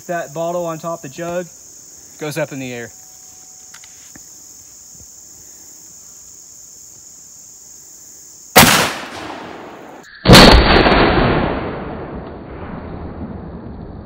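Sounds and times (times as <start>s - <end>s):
crickets trilling: 0.0s - 12.2s
shotgun bangs with echo: 8.6s - 9.6s.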